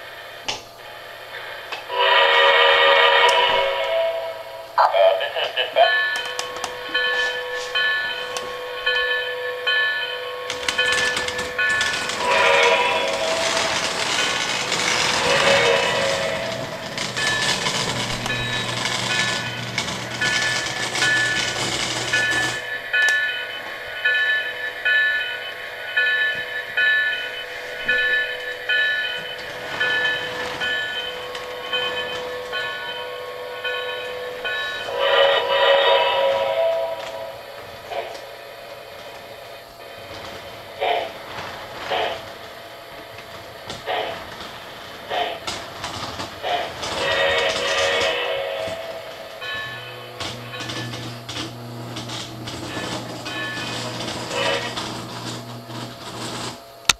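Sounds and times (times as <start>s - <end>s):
model train cars rolling on track: 0.8s - 56.9s
train horn blast: 1.9s - 4.5s, 12.2s - 13.8s, 15.0s - 16.8s.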